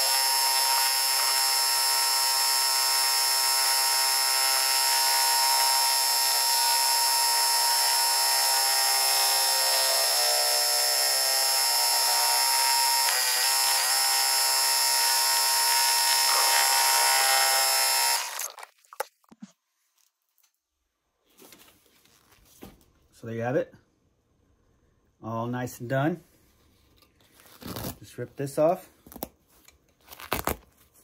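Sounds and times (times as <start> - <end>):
embroidery machine whirring: 0.0 - 18.4.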